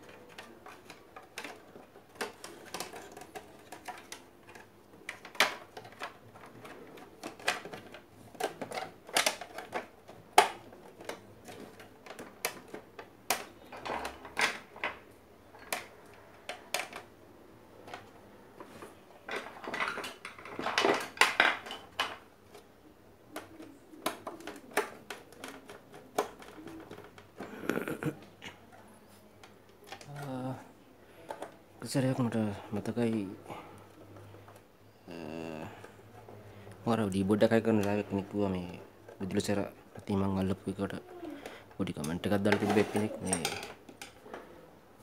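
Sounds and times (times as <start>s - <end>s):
blender parts and tools clattering: 19.3s - 22.2s, 36.9s - 44.4s.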